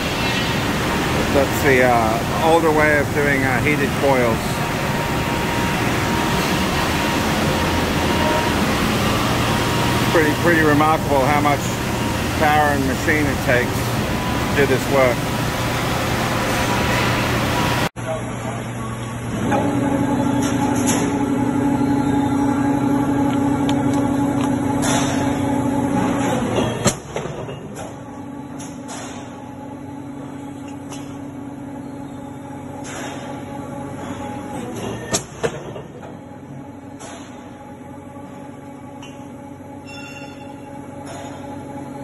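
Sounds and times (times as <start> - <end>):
factory machinery humming: 0.0 - 42.0.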